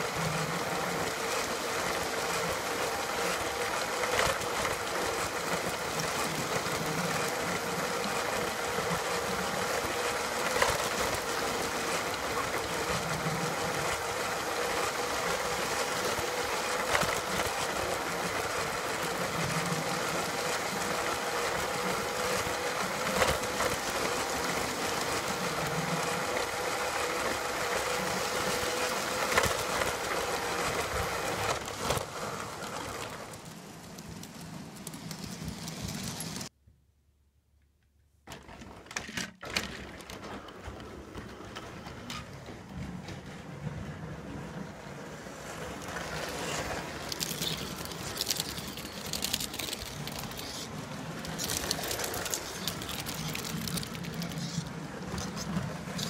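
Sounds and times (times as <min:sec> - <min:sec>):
model train motor whine and rumble: 0:00.0 - 0:36.5, 0:38.4 - 0:56.0
sharp clicks of train: 0:08.0 - 0:36.5, 0:38.3 - 0:43.8, 0:45.5 - 0:56.0.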